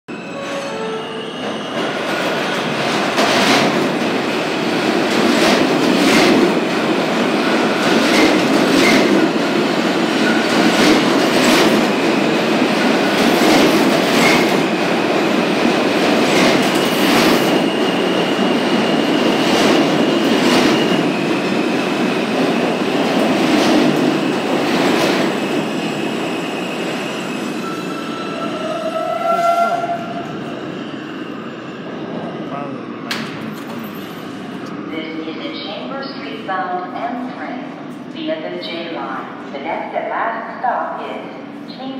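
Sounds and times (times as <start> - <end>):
high brake squeal: 0.1 - 1.9, 26.5 - 30.0
subway train wheels rumbling: 0.1 - 41.9.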